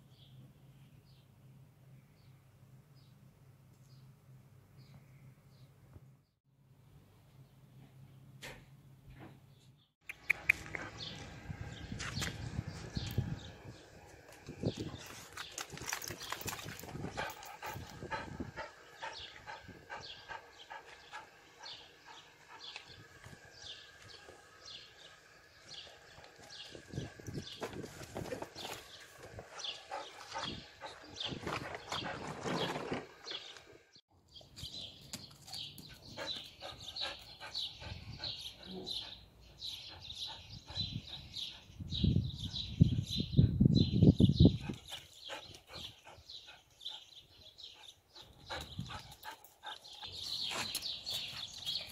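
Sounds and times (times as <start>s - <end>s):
dog panting: 10.2s - 11.8s, 16.3s - 23.8s, 28.6s - 32.1s, 35.9s - 42.5s, 44.5s - 51.9s.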